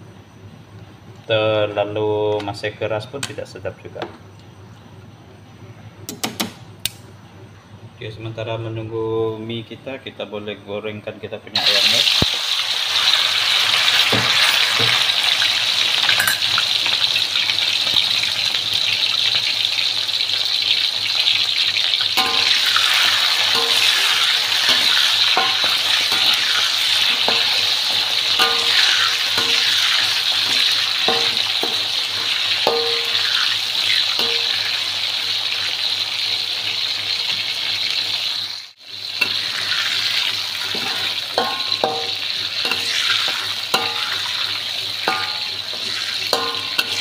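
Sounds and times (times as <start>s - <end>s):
chicken sizzling in hot oil: 11.6s - 47.0s
metal spatula clinking on wok: 16.1s - 16.6s, 22.2s - 31.9s, 32.6s - 33.4s, 34.2s - 34.7s, 40.7s - 42.9s, 43.7s - 44.4s, 45.0s - 47.0s.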